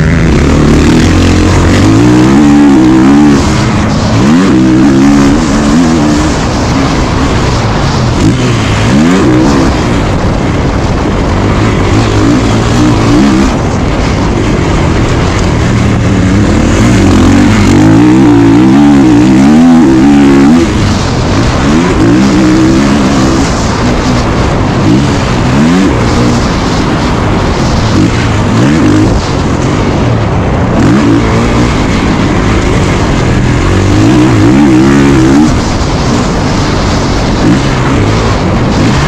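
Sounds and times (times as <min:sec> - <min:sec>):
motocross engine revving: 0:00.0 - 0:39.0.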